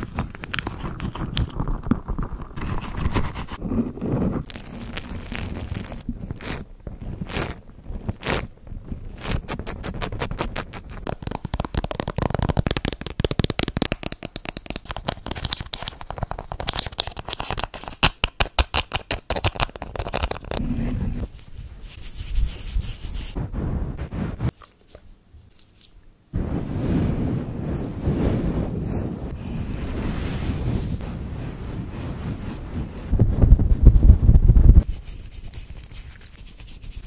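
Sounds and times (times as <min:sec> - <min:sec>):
rubbing and scratching: 0:00.0 - 0:37.0
squeezing a squishy toy: 0:04.3 - 0:14.9.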